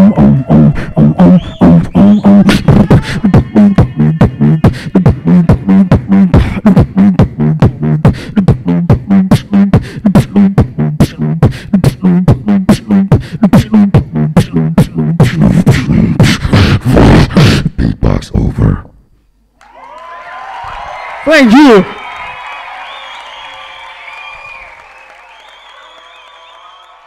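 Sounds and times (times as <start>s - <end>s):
pulsing low bass tone: 0.0s - 16.2s
beatboxing into a microphone: 0.0s - 19.0s.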